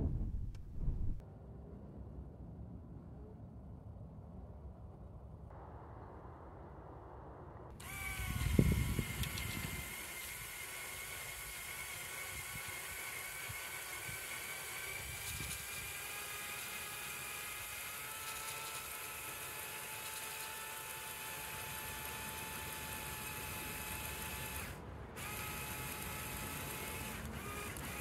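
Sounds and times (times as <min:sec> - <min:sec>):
low knock: 0:00.0 - 0:01.2
electric motor whine: 0:07.8 - 0:28.0.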